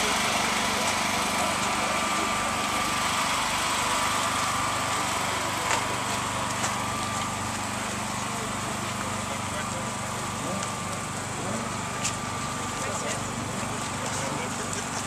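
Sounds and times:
small engine humming: 0.0s - 15.0s.

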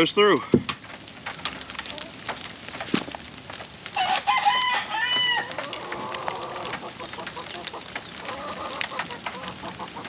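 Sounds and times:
rain dripping: 0.0s - 10.0s
rooster crowing: 4.0s - 6.7s.

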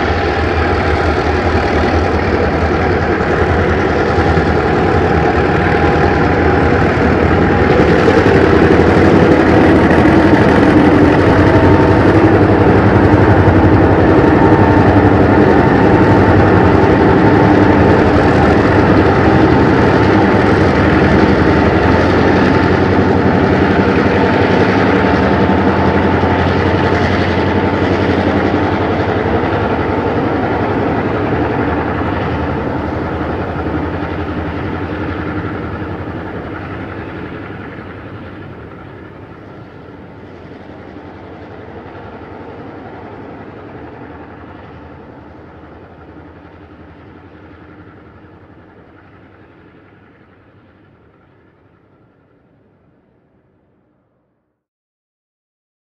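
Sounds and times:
train rolling on rails: 0.0s - 53.7s
diesel locomotive engines: 0.0s - 54.2s.

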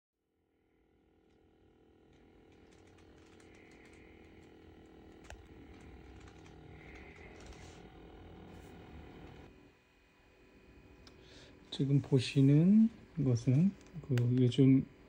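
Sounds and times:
small motor whirring: 1.0s - 9.6s.

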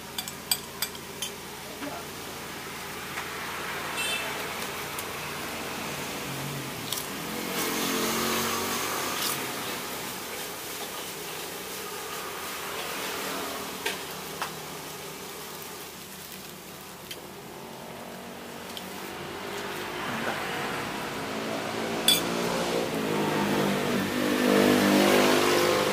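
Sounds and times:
rice sizzling in a wok: 0.0s - 25.9s
passing traffic engines: 2.5s - 25.9s.

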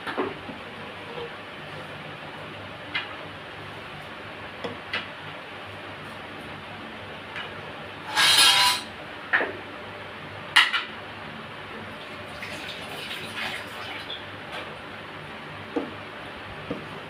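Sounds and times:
utensil scraping: 8.1s - 8.9s.

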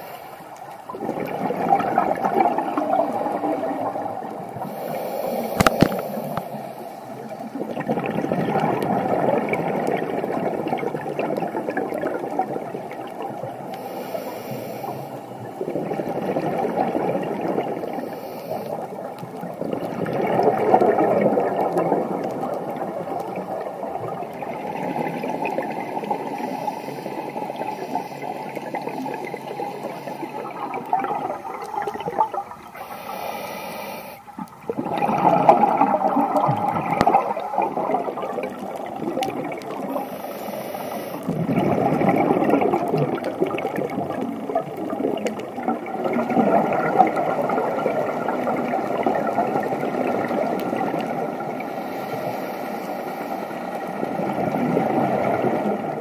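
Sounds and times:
underwater hiss: 0.0s - 7.9s, 12.5s - 19.1s, 22.2s - 44.4s, 46.0s - 56.0s
underwater exhaled bubbles: 0.0s - 56.0s
regulator breathing: 4.6s - 7.3s, 32.7s - 34.3s, 39.9s - 41.4s.

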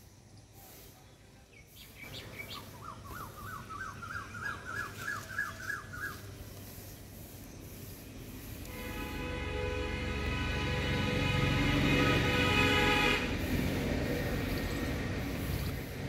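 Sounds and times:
bird singing rising notes: 1.6s - 6.5s
high bird chirps: 1.6s - 8.0s.

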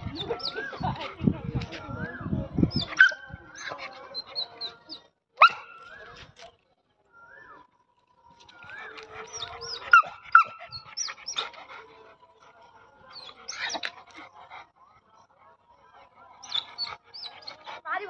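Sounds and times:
animals squealing and yelping: 0.0s - 6.3s, 8.6s - 12.0s, 13.1s - 14.5s, 16.4s - 17.8s.

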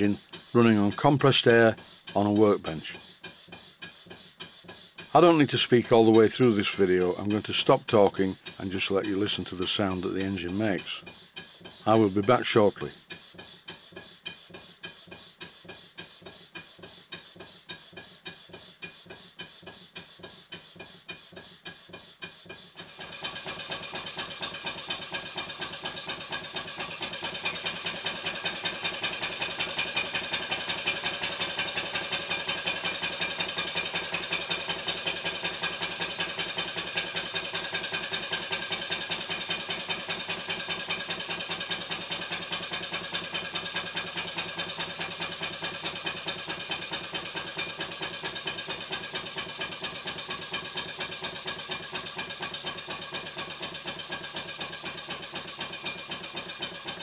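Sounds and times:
steam engine chuffing: 0.0s - 57.0s
valve gear clatter: 0.0s - 57.0s.

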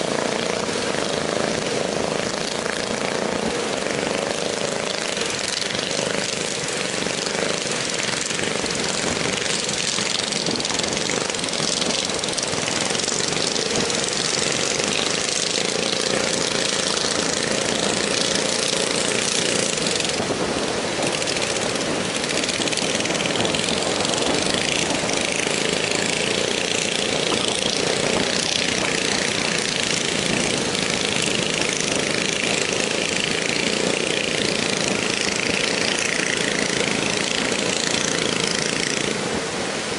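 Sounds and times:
boat engines running: 0.0s - 39.9s
surf rushing: 0.0s - 39.9s
wind: 0.0s - 39.9s.

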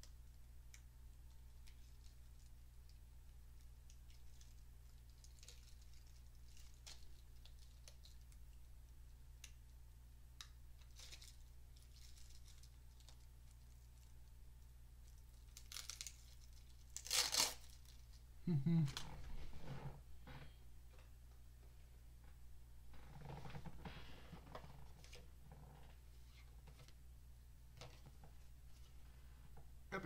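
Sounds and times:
crinkling rustle: 3.6s - 8.6s, 10.8s - 14.3s, 15.0s - 18.2s
steady low hum: 17.6s - 30.0s.

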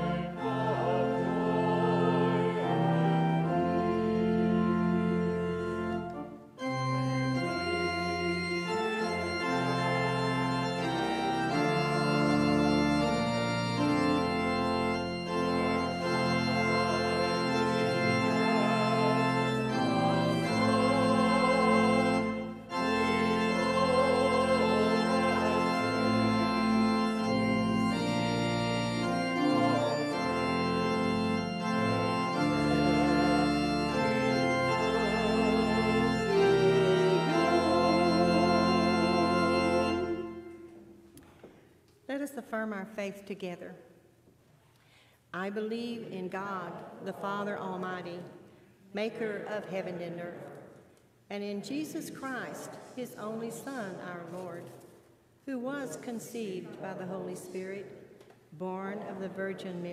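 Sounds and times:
church organ chords: 0.0s - 41.1s.

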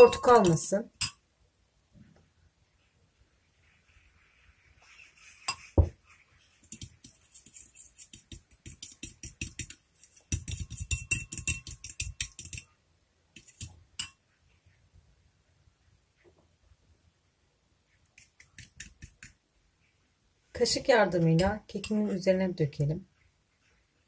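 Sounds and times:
fork whisking in glass bowl: 0.0s - 1.1s, 6.5s - 12.7s, 13.4s - 14.2s, 18.2s - 19.4s.

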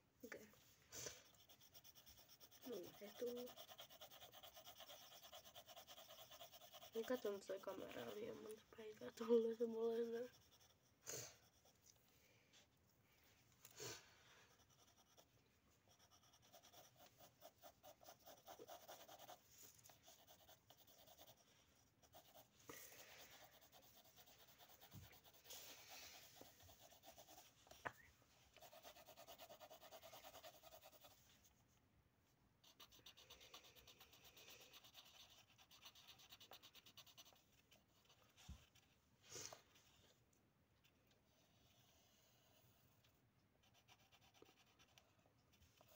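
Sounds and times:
pencils scratching on paper: 0.4s - 12.1s, 13.7s - 27.9s, 28.5s - 31.6s, 32.6s - 40.0s, 40.8s - 45.9s.

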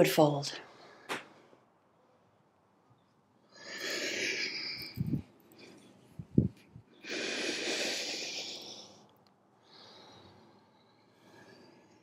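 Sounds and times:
person breathing: 3.4s - 12.0s.

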